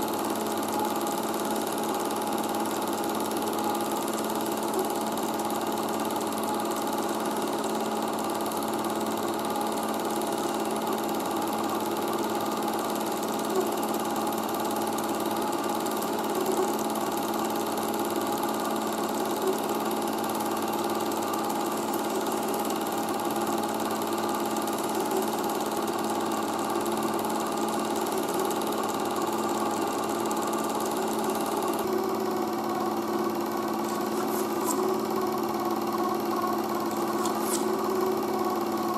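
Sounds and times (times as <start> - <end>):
film projector motor whir: 0.0 - 38.9
projector shutter clatter: 36.8 - 38.0.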